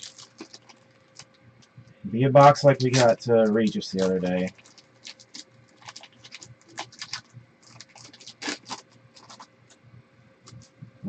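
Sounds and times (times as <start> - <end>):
foil wrapper tearing and crinkling: 0.0 - 1.4, 2.4 - 9.5.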